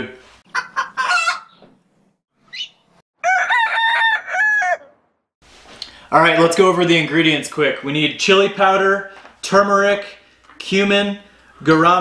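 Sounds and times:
chickens clucking: 0:00.5 - 0:01.8
rooster crowing: 0:03.2 - 0:05.0.

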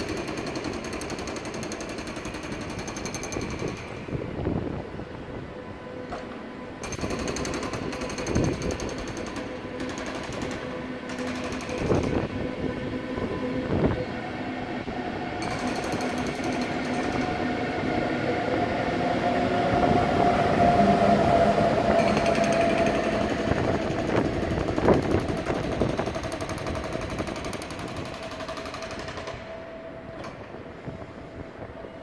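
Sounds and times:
train wheels clattering over rail joints: 0:00.0 - 0:04.1, 0:06.1 - 0:12.3, 0:15.4 - 0:17.4, 0:22.0 - 0:29.6
locomotive whine: 0:00.0 - 0:32.0.

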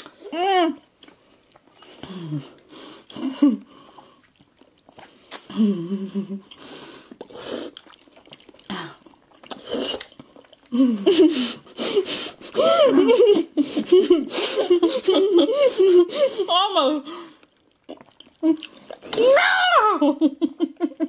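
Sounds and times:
wet chewing and squishing: 0:00.8 - 0:05.6, 0:06.4 - 0:10.8, 0:17.3 - 0:19.3
mouth smacks and clicks: 0:04.2 - 0:10.8, 0:17.4 - 0:19.2.

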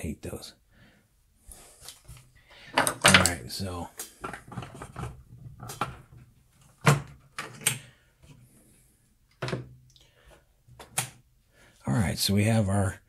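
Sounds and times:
objects knocking on wooden workbench: 0:09.4 - 0:09.7.

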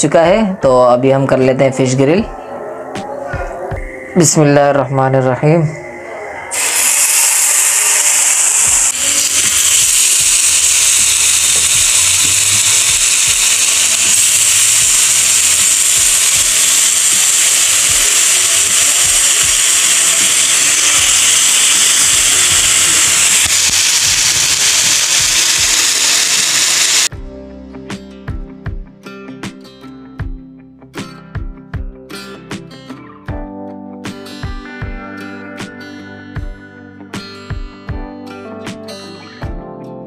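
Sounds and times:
music: 0:00.0 - 0:16.2, 0:27.1 - 0:40.0
fish sizzling on a griddle: 0:06.6 - 0:27.1.

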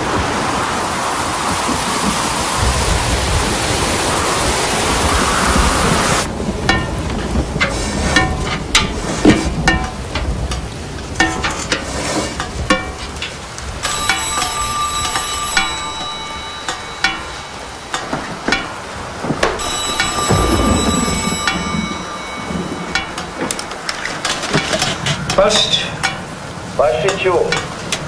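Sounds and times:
water dripping into metal bucket: 0:06.6 - 0:28.0
old telephone bell ringing: 0:13.8 - 0:25.0.

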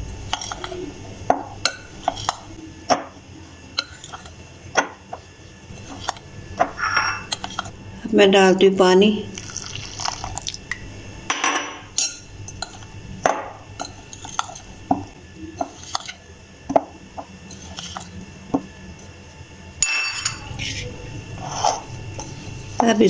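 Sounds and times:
spoon clinking and scraping glass: 0:06.7 - 0:07.7, 0:19.8 - 0:20.8.

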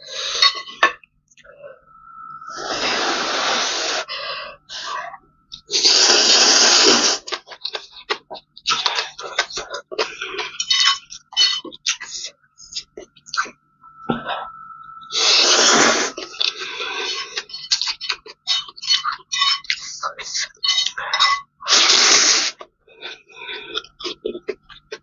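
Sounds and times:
person slurping noodles: 0:05.7 - 0:07.3, 0:15.1 - 0:17.4, 0:21.7 - 0:22.6.

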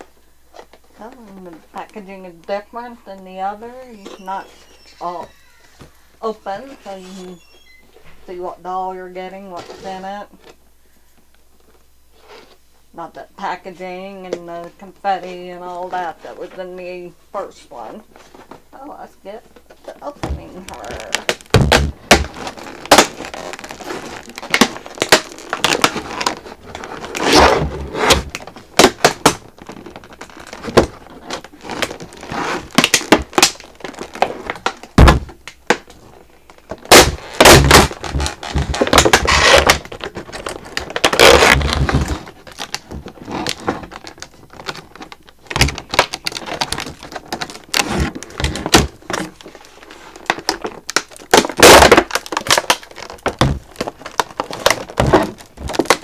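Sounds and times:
packaging rustling: 0:19.4 - 0:56.0
plastic packaging clicking and cracking: 0:19.6 - 0:56.0.

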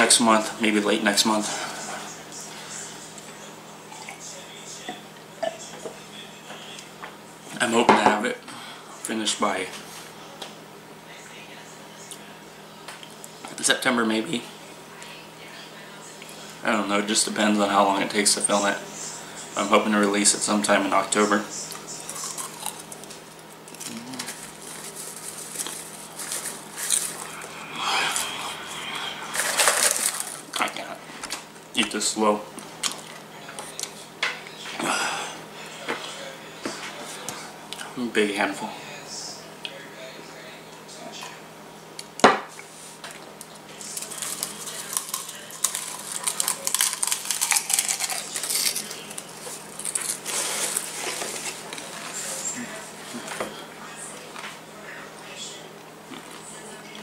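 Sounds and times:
popcorn being chewed: 0:21.7 - 0:32.0, 0:32.6 - 0:34.0, 0:43.1 - 0:52.6, 0:56.0 - 0:57.0
hand rummaging popcorn in plastic bowl: 0:29.3 - 0:30.4.

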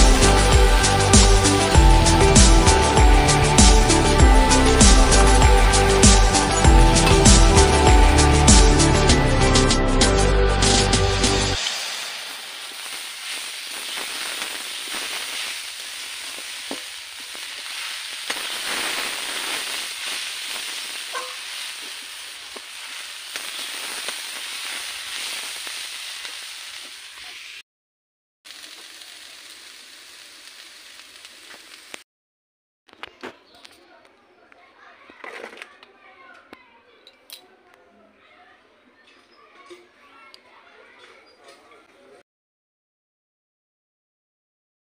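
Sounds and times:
greens sizzling in a pan: 0:00.0 - 0:08.8, 0:11.5 - 0:27.6, 0:28.5 - 0:32.0
metal spatula scraping pan: 0:21.1 - 0:22.0.

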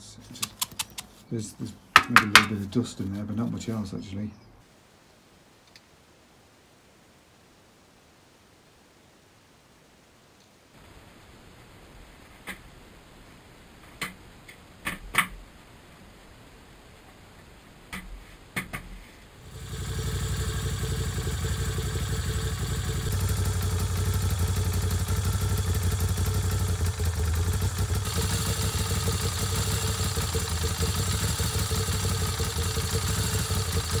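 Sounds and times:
sharp clicks: 0:00.4 - 0:01.1
motorcycle engine running: 0:19.4 - 0:34.0.

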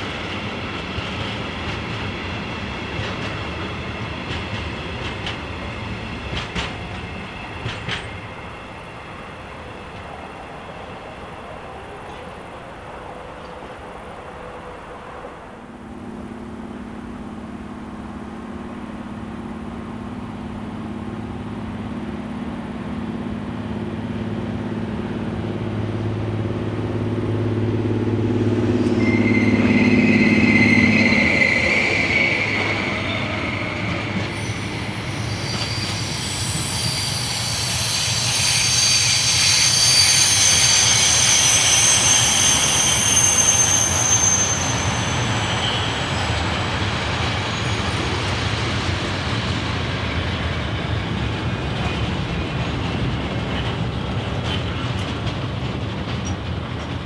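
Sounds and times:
locomotive humming: 0:00.0 - 0:57.0
rumble of wheels on rail: 0:00.0 - 0:57.0
wheel squeal: 0:28.8 - 0:48.7.

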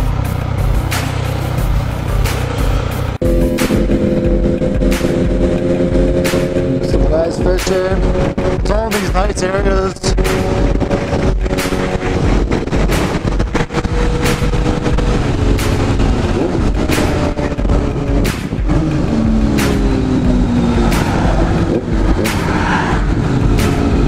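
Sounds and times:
motorcycle engine running: 0:00.0 - 0:24.0
wind rush on microphone: 0:06.5 - 0:24.0.

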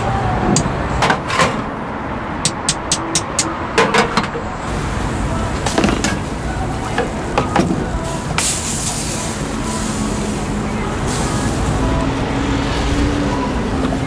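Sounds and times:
street market ambience: 0:00.0 - 0:14.0
traffic noise: 0:00.0 - 0:14.0
bright hiss: 0:04.7 - 0:13.1.

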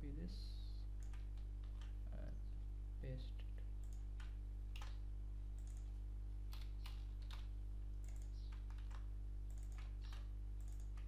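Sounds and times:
low electrical hum: 0:00.0 - 0:11.0
keyboard keystrokes: 0:06.5 - 0:11.0.

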